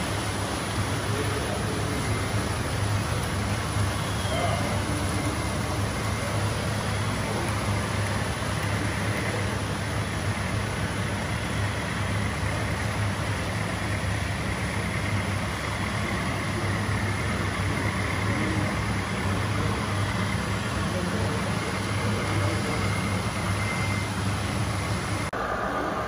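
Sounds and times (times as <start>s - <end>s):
constant hiss: 0.0s - 26.0s
model truck motor hum: 0.0s - 26.0s.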